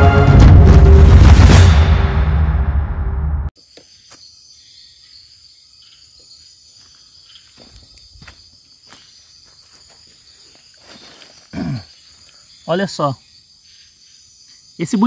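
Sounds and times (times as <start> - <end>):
insects chirring: 3.6 - 15.0.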